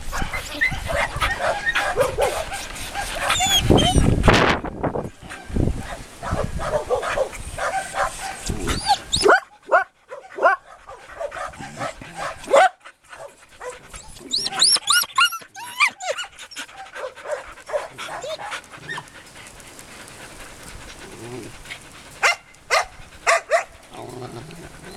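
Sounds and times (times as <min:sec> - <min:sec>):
dog panting: 0:00.0 - 0:04.6, 0:05.2 - 0:24.9
dog barking: 0:00.1 - 0:03.6, 0:05.4 - 0:08.5, 0:09.2 - 0:13.8, 0:17.0 - 0:18.5, 0:22.2 - 0:23.7
dog whining and yipping: 0:03.2 - 0:04.3, 0:07.7 - 0:09.4, 0:13.9 - 0:19.2.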